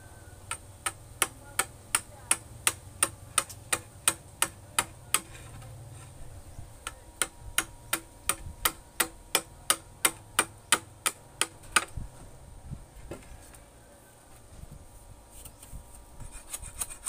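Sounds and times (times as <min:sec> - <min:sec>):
machete chopping wood: 0:00.5 - 0:05.4.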